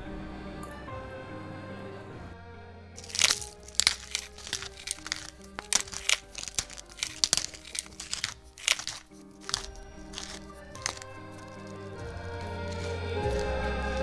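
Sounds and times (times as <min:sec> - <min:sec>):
background music: 0:00.0 - 0:14.0
pepper mill grinding: 0:03.0 - 0:14.0.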